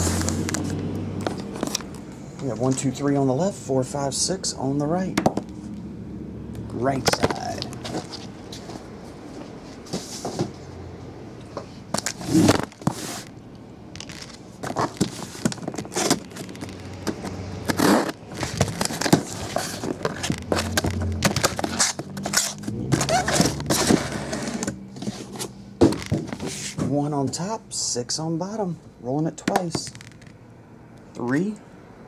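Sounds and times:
cardboard scraping and crackling: 0:06.9 - 0:10.6, 0:12.0 - 0:13.4, 0:14.0 - 0:27.0
knife slitting packing tape: 0:17.6 - 0:24.6.

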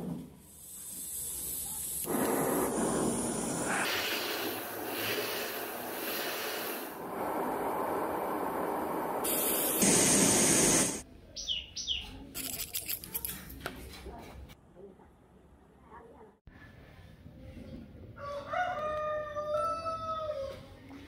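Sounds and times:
blowtorch flame hissing: 0:00.4 - 0:11.0.

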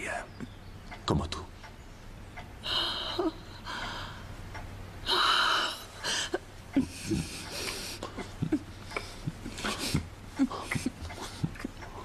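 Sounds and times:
breathing: 0:02.6 - 0:04.4.

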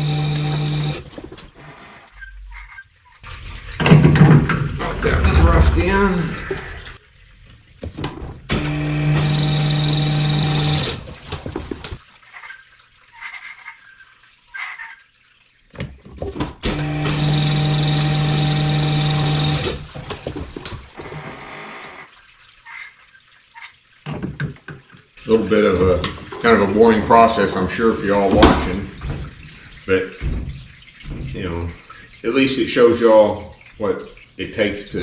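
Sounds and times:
honing machine humming and whining: 0:00.0 - 0:01.0, 0:08.6 - 0:10.9
liquid running: 0:00.0 - 0:35.0.

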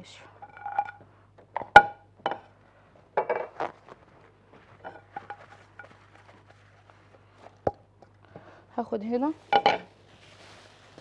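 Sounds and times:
dishes and utensils clinking: 0:04.8 - 0:06.1, 0:09.5 - 0:09.9.

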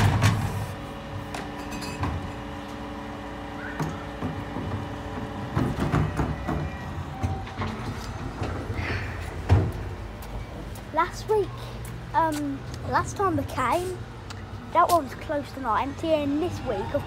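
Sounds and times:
truck engine and hydraulic lift hum: 0:00.0 - 0:17.0
wheelie bin knocking and banging: 0:03.8 - 0:08.6.

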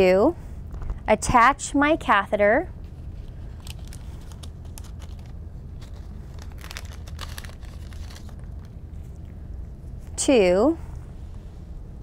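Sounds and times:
steady low hum: 0:00.0 - 0:12.0
packaging crinkling: 0:02.9 - 0:09.3.

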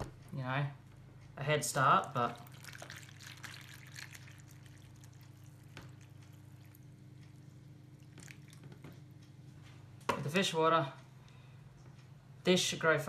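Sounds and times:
water pouring into a bowl: 0:02.2 - 0:08.7.

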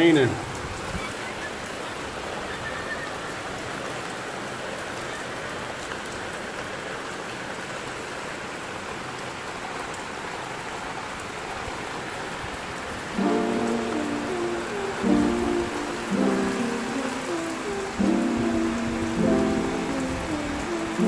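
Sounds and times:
heavy rain pouring: 0:00.0 - 0:21.0
raindrop ticks: 0:13.1 - 0:21.0.

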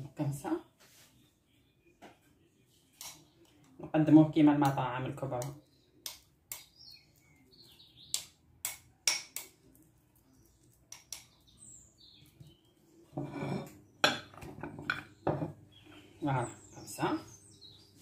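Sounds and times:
birds chirping faintly: 0:00.0 - 0:18.0
metal spoon scraping a bowl: 0:13.1 - 0:16.6
dishware knock: 0:14.0 - 0:15.6.

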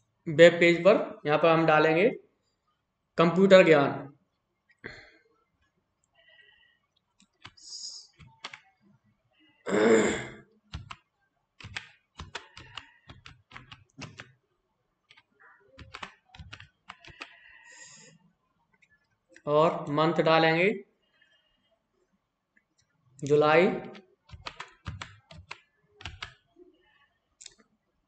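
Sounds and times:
keyboard typing: 0:07.2 - 0:08.8, 0:10.7 - 0:14.4, 0:15.0 - 0:18.1, 0:23.8 - 0:26.5.

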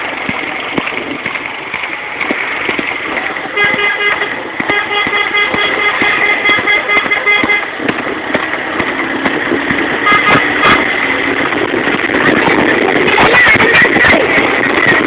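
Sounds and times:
road traffic passing: 0:00.0 - 0:15.0
vehicle horn beeping: 0:03.5 - 0:07.7, 0:10.0 - 0:11.0
horn toot: 0:03.5 - 0:07.9, 0:10.0 - 0:11.2.

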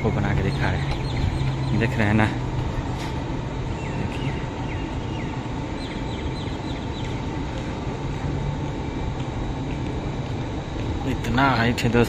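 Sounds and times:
faint hum: 0:00.0 - 0:12.0
outdoor background rumble: 0:00.0 - 0:12.0
small bird chirping: 0:00.2 - 0:02.4, 0:03.7 - 0:07.3.

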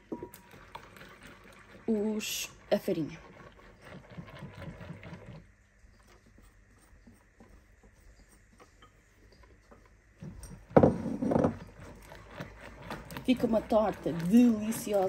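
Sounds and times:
rhythmic whisking strokes: 0:00.0 - 0:10.7, 0:11.6 - 0:15.0
whisk scraping and tapping bowl: 0:03.0 - 0:15.0.

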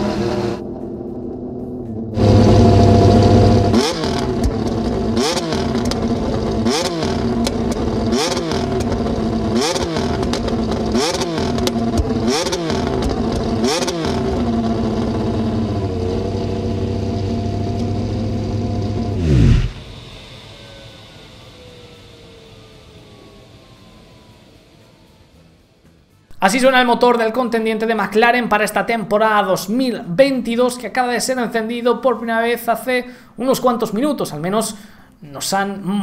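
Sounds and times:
racing car engine revving: 0:00.0 - 0:26.2.

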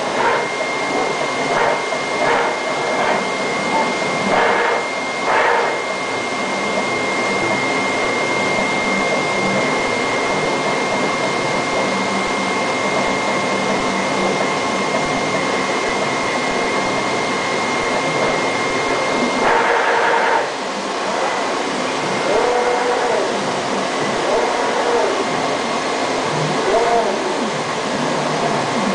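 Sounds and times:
machine fan hiss: 0:00.0 - 0:28.9
thin high whine: 0:00.0 - 0:28.9.

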